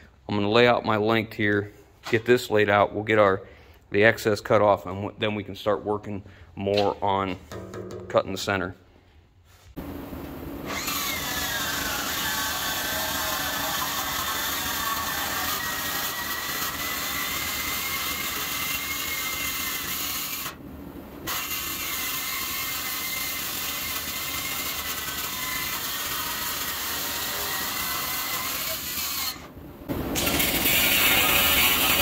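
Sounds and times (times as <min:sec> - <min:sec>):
circular saw cutting steel: 0:10.7 - 0:20.6, 0:21.2 - 0:32.0.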